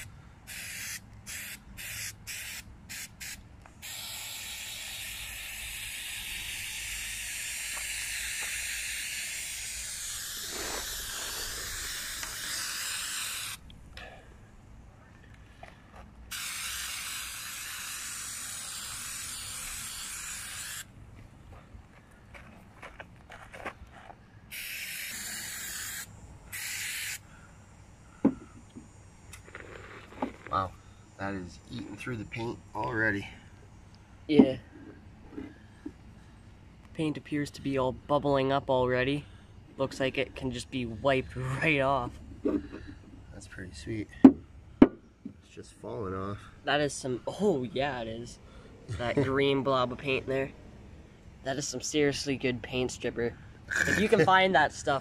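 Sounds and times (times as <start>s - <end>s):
aerosol can spraying: 0.0s - 13.6s, 16.3s - 20.9s, 24.5s - 27.2s.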